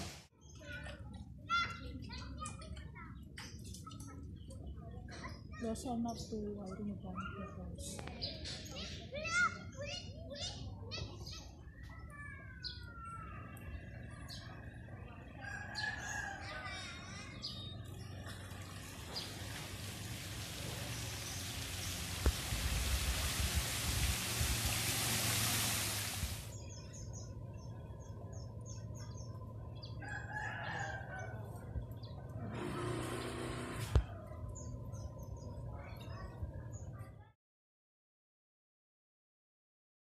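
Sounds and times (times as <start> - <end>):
small birds chirping: 0.3 - 22.9, 25.9 - 37.3
water rushing off tyres: 18.1 - 26.6
rooster crowing: 30.0 - 31.6
motor scooter engine: 32.4 - 34.1.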